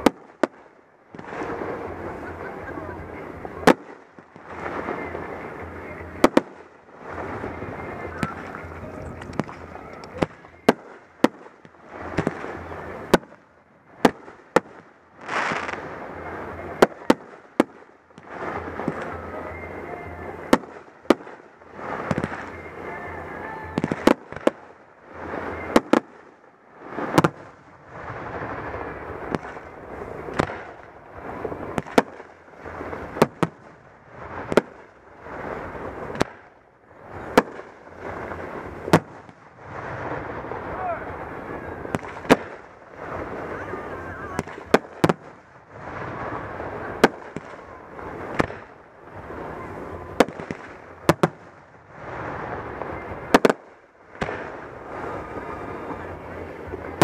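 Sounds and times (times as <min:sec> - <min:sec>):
continuous rumbling: 0:00.0 - 0:57.0
firework shells booming: 0:08.0 - 0:13.4, 0:20.5 - 0:22.6, 0:27.0 - 0:51.7, 0:52.7 - 0:54.9.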